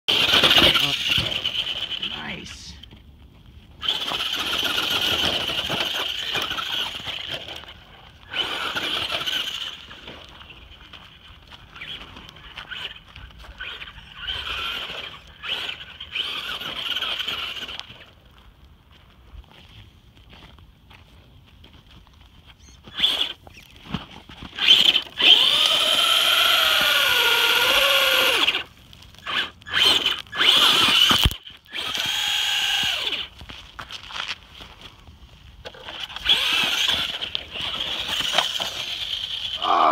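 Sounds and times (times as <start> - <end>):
rc truck motor whining: 0.1 - 2.6, 3.8 - 18.2, 22.8 - 33.3, 35.6 - 39.9
tyres crackling over dirt: 0.1 - 39.9.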